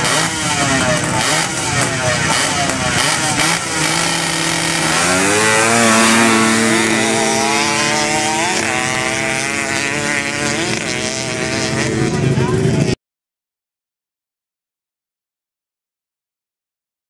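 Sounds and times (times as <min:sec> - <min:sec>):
atv engines at full throttle: 0:00.0 - 0:13.0.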